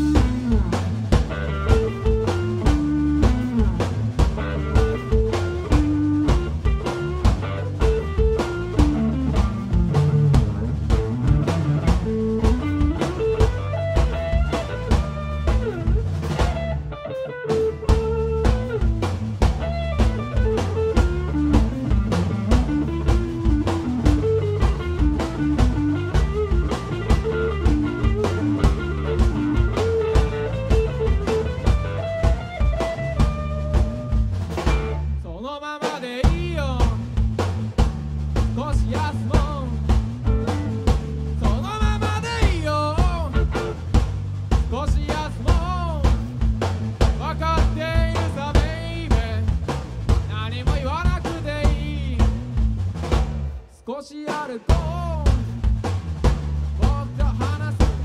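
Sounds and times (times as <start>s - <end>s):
live rock band playing: 0.0s - 53.7s, 54.3s - 58.0s
man singing: 35.2s - 37.1s, 38.6s - 39.9s, 41.4s - 43.7s, 44.7s - 46.2s, 47.2s - 49.5s, 50.3s - 52.3s, 53.7s - 55.5s, 56.8s - 58.0s.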